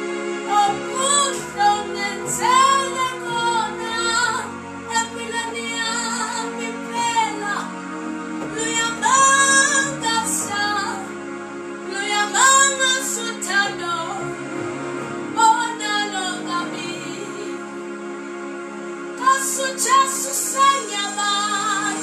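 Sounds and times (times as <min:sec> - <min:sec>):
electronic keyboard chords: 0:00.0 - 0:22.0
woman singing gospel song: 0:00.5 - 0:07.7, 0:08.5 - 0:11.1, 0:11.9 - 0:14.3, 0:15.4 - 0:17.6, 0:19.2 - 0:22.0.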